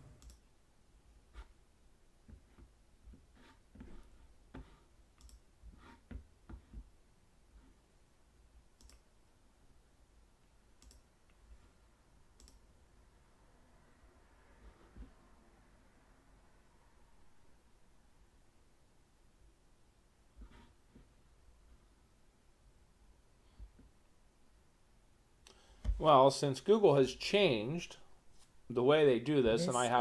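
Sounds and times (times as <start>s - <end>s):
faint computer clicking: 0.2s - 0.5s, 5.1s - 5.5s, 8.7s - 9.1s, 10.7s - 11.4s, 12.4s - 12.7s.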